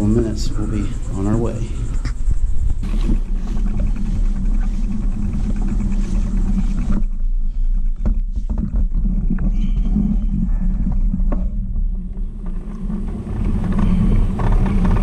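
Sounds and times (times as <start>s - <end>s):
bicycle rolling vibration: 0.0s - 15.0s
wind rumble on microphone: 0.0s - 15.0s.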